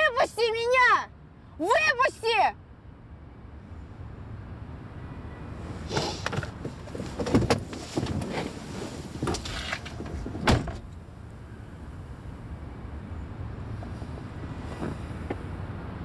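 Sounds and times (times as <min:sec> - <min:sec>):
car door heavy thump: 0:10.3 - 0:10.9.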